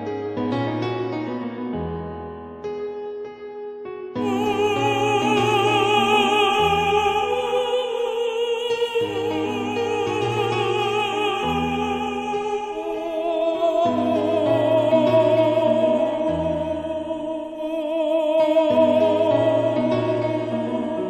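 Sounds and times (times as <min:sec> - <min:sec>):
classical music accompaniment: 0:00.0 - 0:21.0
operatic singing: 0:04.2 - 0:21.0.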